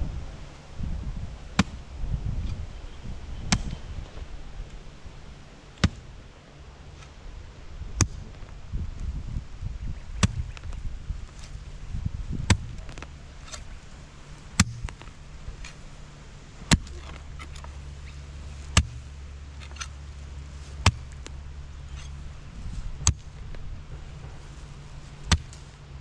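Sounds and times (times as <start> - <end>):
low steady hum: 0.0 - 26.0
hand tool chopping into ground: 1.6 - 1.8, 3.5 - 3.8, 5.8 - 6.1, 8.0 - 8.4, 10.2 - 11.6, 12.3 - 13.8, 14.5 - 15.8, 16.6 - 17.8, 18.4 - 20.0, 20.6 - 22.2, 23.0 - 23.4, 25.2 - 25.7.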